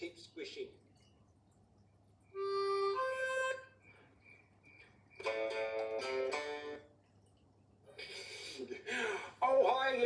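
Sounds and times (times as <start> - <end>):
guitar music from television speaker: 5.2 - 6.9.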